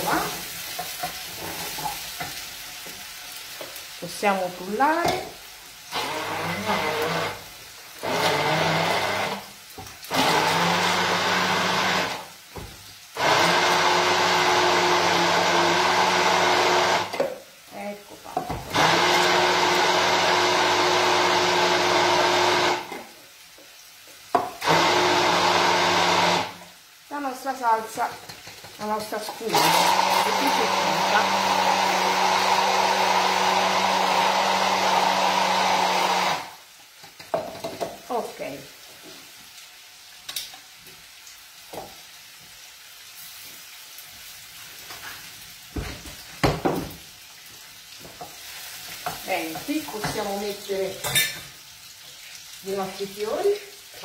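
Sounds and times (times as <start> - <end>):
food sizzling in a pan: 0.0 - 54.0
immersion blender running: 5.9 - 7.4, 8.0 - 9.5, 10.1 - 12.3, 13.2 - 17.2, 18.7 - 23.1, 24.6 - 26.7, 29.5 - 36.6.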